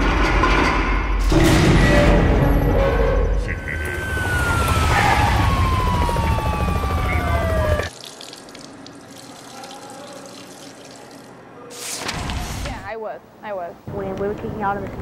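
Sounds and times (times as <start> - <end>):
police siren winding down: 2.8 - 7.9.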